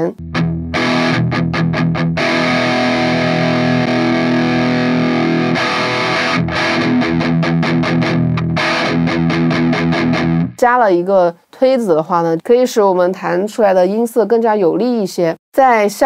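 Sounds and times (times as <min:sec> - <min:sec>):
distorted electric guitar riff: 0:00.0 - 0:10.6.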